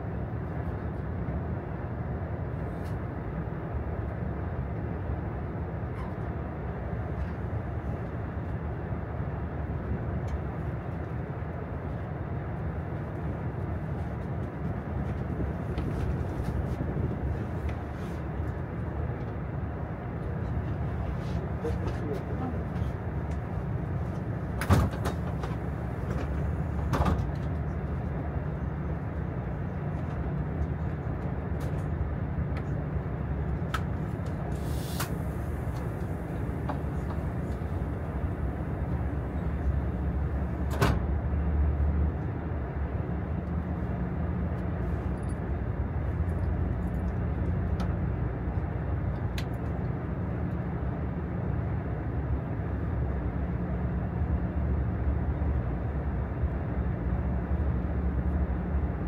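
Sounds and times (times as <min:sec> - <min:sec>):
train interior rumble: 0:00.0 - 0:59.0
brief hiss: 0:34.5 - 0:35.5.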